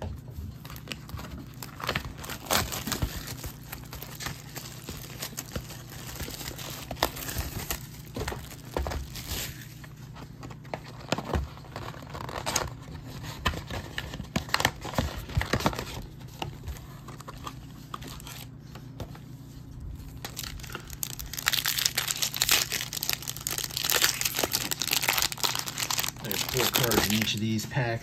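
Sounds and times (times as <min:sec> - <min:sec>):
foil wrappers crinkling and tearing: 0:00.5 - 0:18.6, 0:20.0 - 0:27.6
cardboard box rustling: 0:20.1 - 0:27.6.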